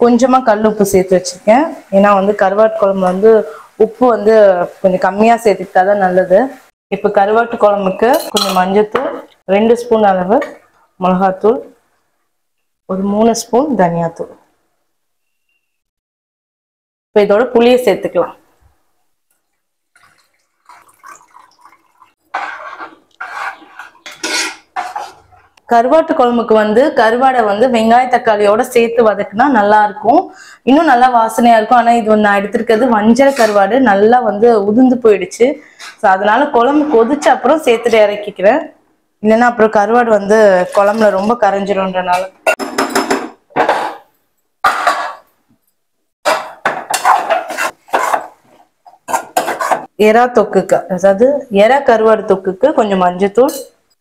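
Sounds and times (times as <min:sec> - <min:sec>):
liquid pouring into a pan: 0:19.3 - 0:22.2
ladle stirring sloshing liquid: 0:19.3 - 0:25.6, 0:46.3 - 0:49.9
metal pots clanking: 0:20.0 - 0:25.6, 0:42.1 - 0:45.3, 0:46.3 - 0:49.9.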